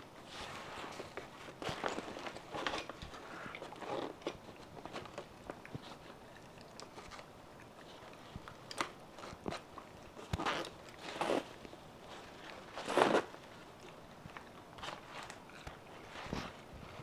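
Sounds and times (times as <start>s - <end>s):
fabric rustling: 0.0s - 5.1s, 9.2s - 13.7s.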